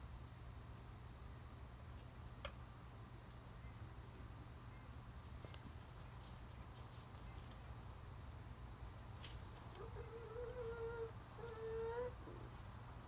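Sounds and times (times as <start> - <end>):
hen whining calls: 9.8 - 12.5.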